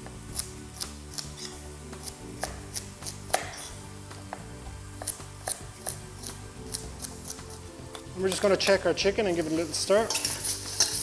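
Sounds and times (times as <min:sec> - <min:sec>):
knife chopping on wooden board: 0:00.8 - 0:06.0.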